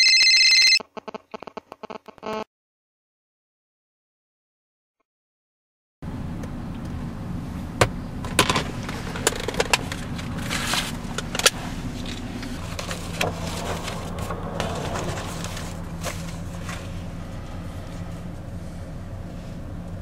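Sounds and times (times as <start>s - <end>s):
truck engine idling: 7.9s - 20.0s
paper rustling: 9.9s - 11.2s, 12.0s - 17.0s.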